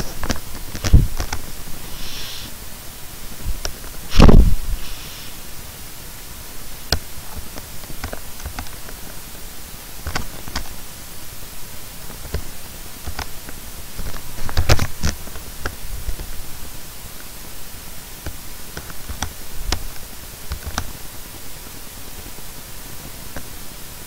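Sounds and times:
steady hiss: 0.0s - 24.0s
computer mouse clicks: 18.2s - 19.9s, 20.5s - 21.0s.

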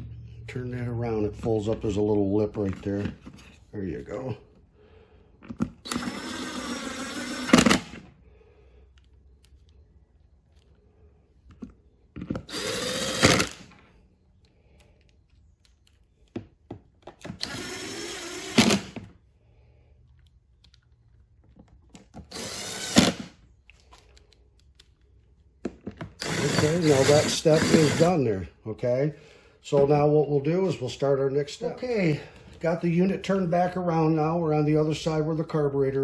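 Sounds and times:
power driver motor whirring: 5.8s - 8.0s, 12.4s - 13.7s, 17.3s - 19.0s, 22.3s - 23.3s, 26.2s - 28.2s.

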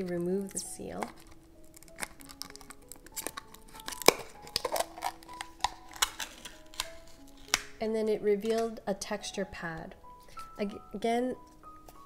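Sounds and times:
plastic seal peeling and tearing: 0.0s - 7.8s, 8.4s - 8.8s
soft background music: 0.0s - 12.0s.

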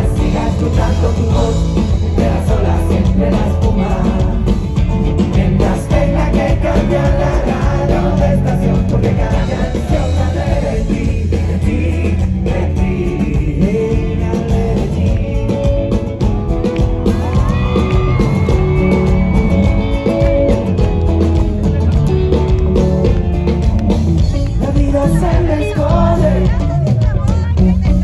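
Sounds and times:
person singing: 0.0s - 16.2s, 24.3s - 28.0s
guitar: 0.0s - 28.0s
pop-rock band playing: 0.0s - 28.0s.

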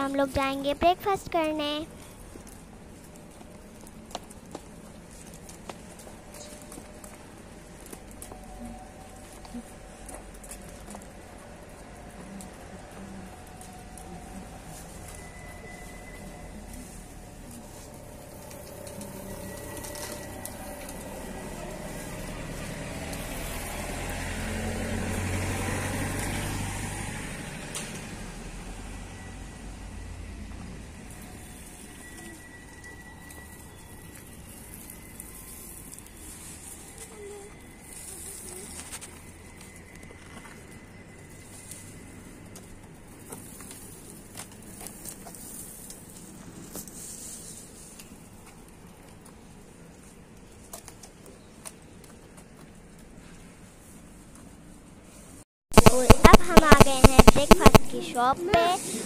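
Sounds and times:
vehicle passing: 7.4s - 46.2s.

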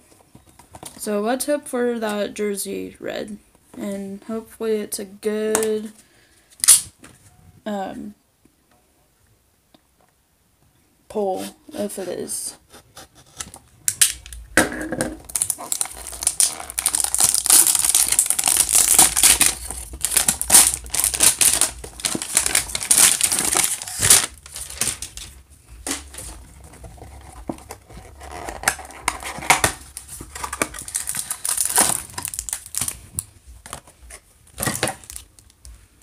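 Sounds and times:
packaging crinkling and tearing: 6.6s - 6.9s, 15.2s - 35.6s
sharp crack: 13.9s - 25.1s.

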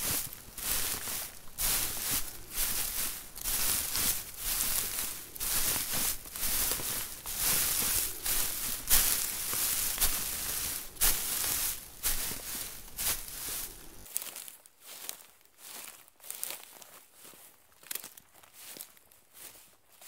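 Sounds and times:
footsteps on hay: 0.0s - 20.0s.

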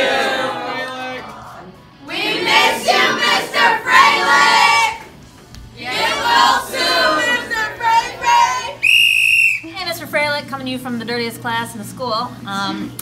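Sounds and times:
group of students singing: 0.0s - 5.1s, 5.8s - 8.8s.

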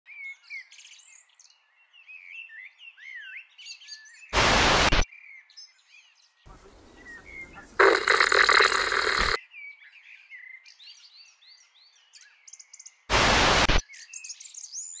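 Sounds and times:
loud burst of hiss-like noise: 4.4s - 5.0s, 7.8s - 9.4s, 13.1s - 13.8s
birds singing and chirping: 5.1s - 13.1s, 13.8s - 15.0s.

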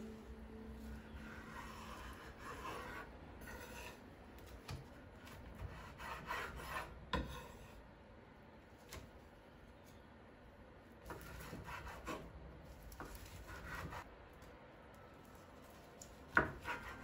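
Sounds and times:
knife cutting and scraping on board: 0.9s - 7.8s, 11.0s - 14.1s, 16.3s - 17.0s.

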